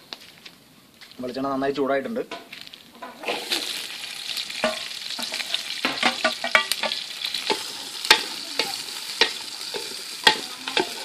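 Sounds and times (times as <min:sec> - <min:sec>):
shallots sizzling in hot oil: 0:02.6 - 0:11.0
wooden spatula knocking on pan: 0:10.2 - 0:11.0.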